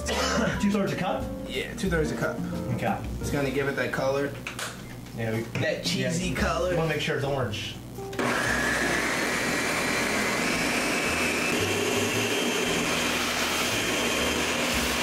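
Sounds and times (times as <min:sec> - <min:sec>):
blender motor whining: 0:08.2 - 0:15.0.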